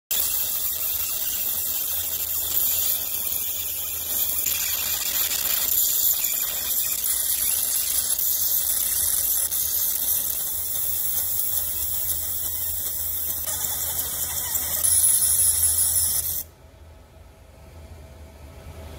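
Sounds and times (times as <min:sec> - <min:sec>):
laser engraver high-pitched hiss: 0:00.1 - 0:16.5
low steady hum: 0:15.2 - 0:18.9.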